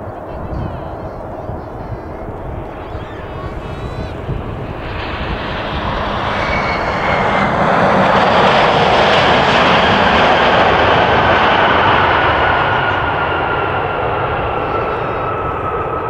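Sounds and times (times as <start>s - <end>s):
faint high whine: 0.0s - 7.0s
jet engines roaring: 0.0s - 16.0s.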